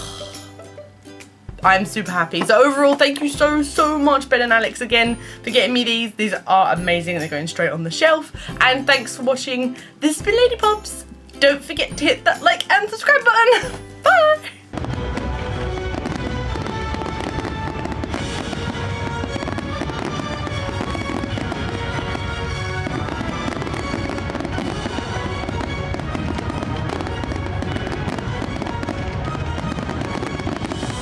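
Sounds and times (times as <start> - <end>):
music playing: 0.0 - 31.0
fireworks crackling and popping: 13.6 - 31.0.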